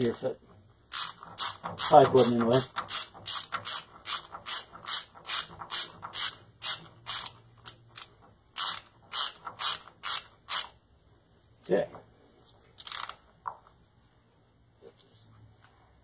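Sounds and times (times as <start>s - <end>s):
socket ratchet clicking: 0.9s - 10.8s, 12.8s - 13.2s.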